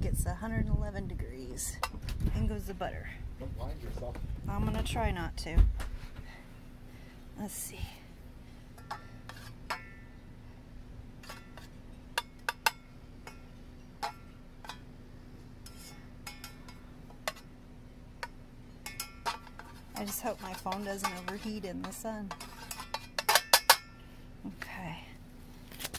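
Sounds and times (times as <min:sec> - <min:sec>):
spatula knocking saucepan: 0:18.8 - 0:23.8.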